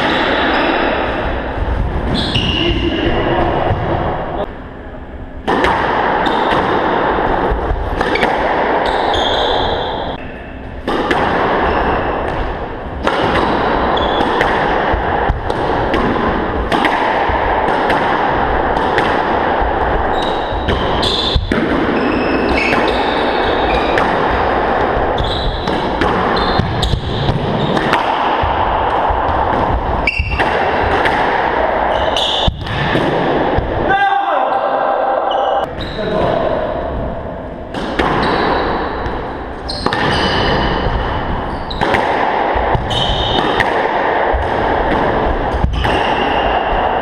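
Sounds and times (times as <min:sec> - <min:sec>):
steady background noise: 0:00.0 - 0:47.0
squash ball smacking: 0:05.3 - 0:33.9, 0:37.0 - 0:47.0
shoes squeaking on wooden floor: 0:08.8 - 0:10.2, 0:25.0 - 0:25.7.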